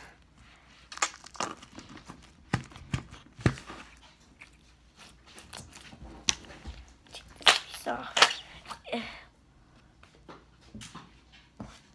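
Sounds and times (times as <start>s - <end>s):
slime squelching and crackling: 0.0s - 9.0s.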